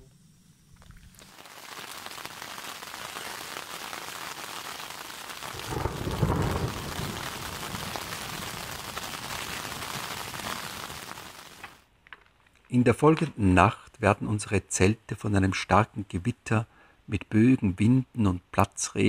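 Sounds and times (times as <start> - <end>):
heavy rain hissing: 0.0 - 11.8
low roll of thunder: 5.5 - 10.6.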